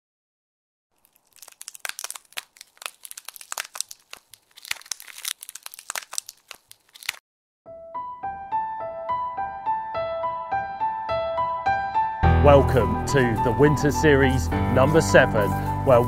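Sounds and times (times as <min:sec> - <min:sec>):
ice crackling: 0:01.0 - 0:07.2.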